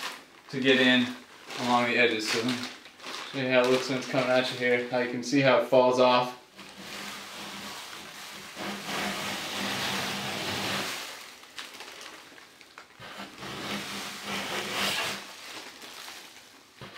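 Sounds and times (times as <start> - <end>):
scraper blade scraping ceiling: 6.6 - 11.3, 13.0 - 15.6.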